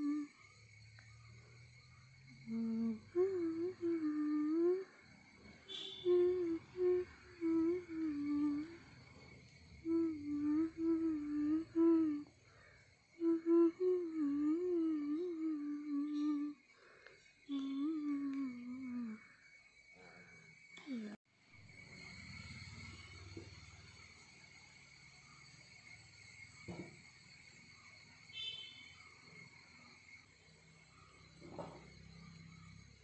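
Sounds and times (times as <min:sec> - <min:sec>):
person humming a tune: 0:00.0 - 0:00.4, 0:02.4 - 0:05.0, 0:05.7 - 0:08.8, 0:09.8 - 0:12.3, 0:13.1 - 0:16.6, 0:17.5 - 0:19.3.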